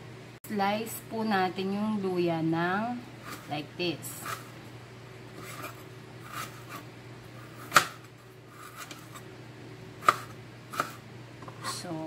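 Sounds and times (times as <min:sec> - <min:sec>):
knife slicing on plastic board: 0:05.4 - 0:09.2, 0:10.0 - 0:11.0.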